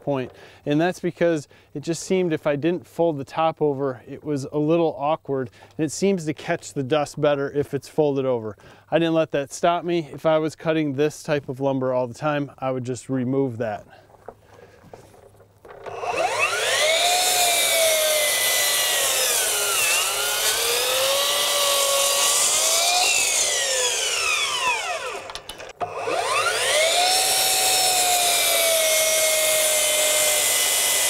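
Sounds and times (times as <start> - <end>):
miter saw cutting wood: 15.6 - 31.0.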